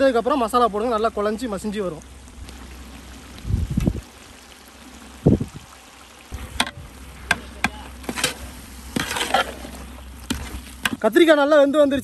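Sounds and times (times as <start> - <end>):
steady hiss: 0.4 - 11.5
ladle scraping metal pot: 6.4 - 11.0.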